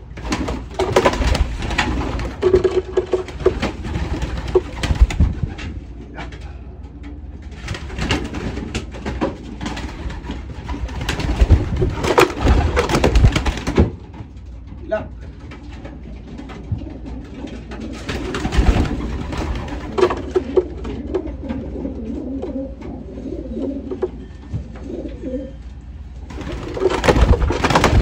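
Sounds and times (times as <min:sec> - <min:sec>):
knocks and rustles of birds: 0:00.0 - 0:25.2, 0:26.0 - 0:28.0
pigeons cooing: 0:15.4 - 0:28.0.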